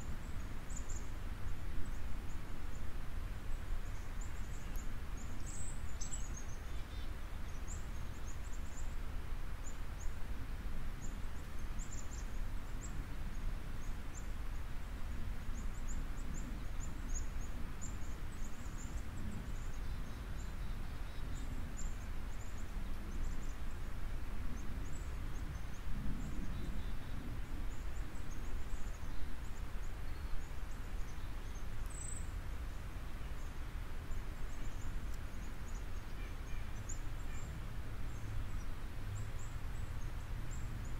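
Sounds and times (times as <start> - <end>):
faint high-pitched bird chirps: 34.4 - 38.7.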